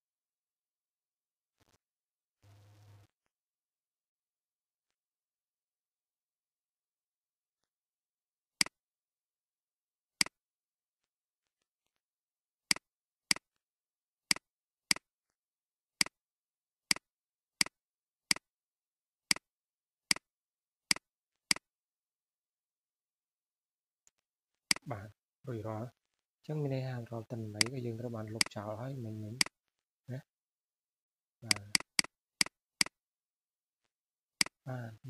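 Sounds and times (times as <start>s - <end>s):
computer mouse clicking: 27.6s - 27.8s.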